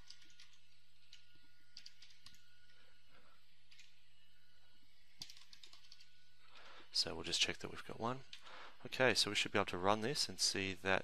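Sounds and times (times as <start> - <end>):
faint keyboard typing: 0.0 - 2.8, 3.6 - 4.0, 5.2 - 6.2
steady low hum: 0.0 - 11.0.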